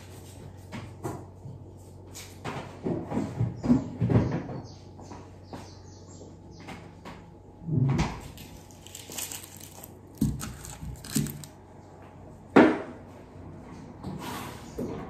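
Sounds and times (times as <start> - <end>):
rustling: 8.3 - 11.6
vegetables knocking on countertop: 10.2 - 11.5.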